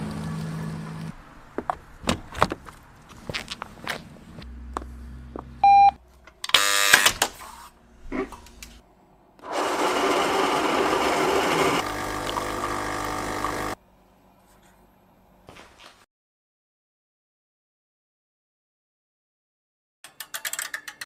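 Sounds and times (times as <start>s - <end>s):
intercom beep: 5.6s - 6.0s
door buzzer: 6.5s - 7.2s
coffee vending machine running: 9.4s - 13.8s.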